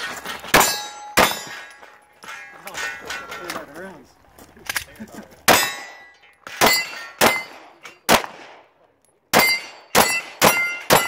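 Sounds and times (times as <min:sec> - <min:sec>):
metallic ring of steel targets: 0:00.0 - 0:03.7, 0:05.5 - 0:08.1, 0:09.3 - 0:11.0.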